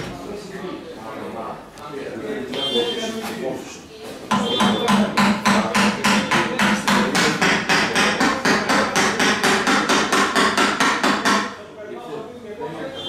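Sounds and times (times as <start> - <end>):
hammer striking: 4.3 - 11.6.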